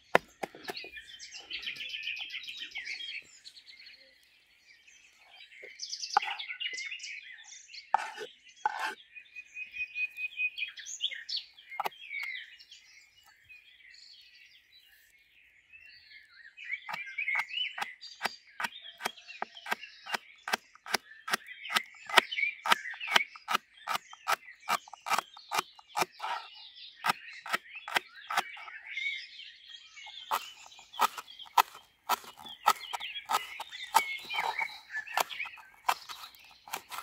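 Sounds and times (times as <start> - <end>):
knife chopping on wood: 0.0 - 0.9, 8.0 - 9.0, 17.8 - 26.4, 27.0 - 28.6, 30.1 - 37.0
birds singing: 0.0 - 37.0.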